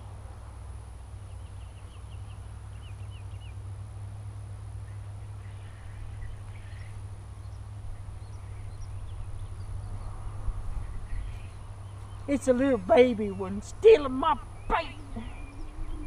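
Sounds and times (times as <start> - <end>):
bird chirping: 1.3 - 3.6, 4.8 - 16.0
wind rumble on microphone: 1.3 - 12.3, 14.3 - 16.0.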